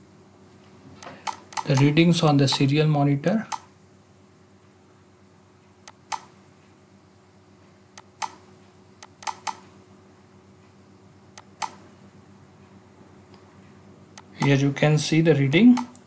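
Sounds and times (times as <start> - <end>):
faint steady hum: 0.0 - 16.0
computer mouse clicking: 1.0 - 1.9, 5.8 - 6.3, 8.0 - 8.4, 9.0 - 9.6, 11.4 - 11.8, 15.8 - 16.0.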